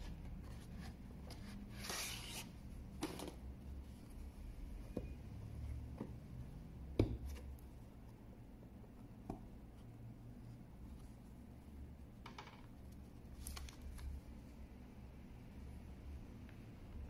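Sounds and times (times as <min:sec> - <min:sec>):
paper rustle: 0:13.3 - 0:14.2.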